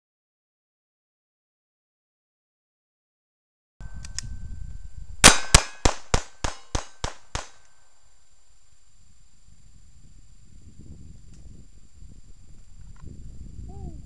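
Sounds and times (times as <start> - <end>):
pistol shots: 5.2 - 7.7.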